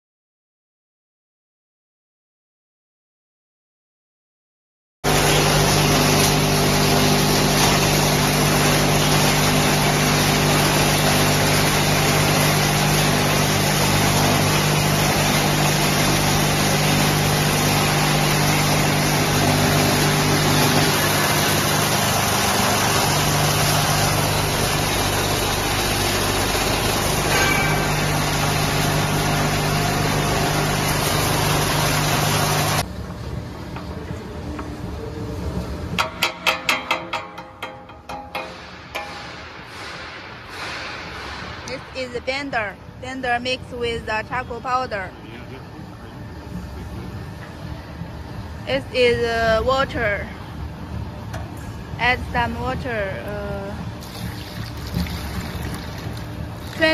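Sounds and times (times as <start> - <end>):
charcoal grinder running: 5.1 - 32.9, 50.0 - 56.9
constant low hum: 6.0 - 56.9.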